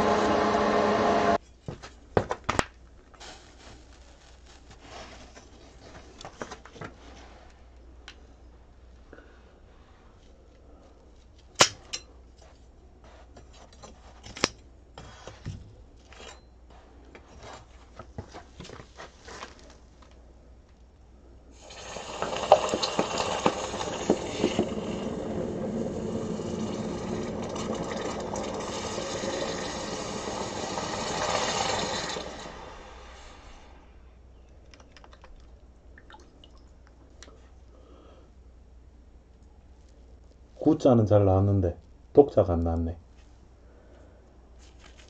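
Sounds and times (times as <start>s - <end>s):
hot metal sizzling in water: 21.6s - 32.7s.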